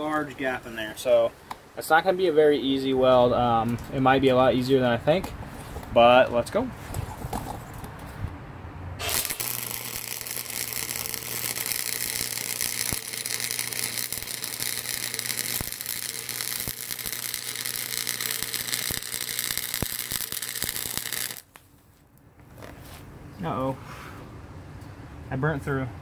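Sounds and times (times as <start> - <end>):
welding arc crackling: 9.0 - 21.6.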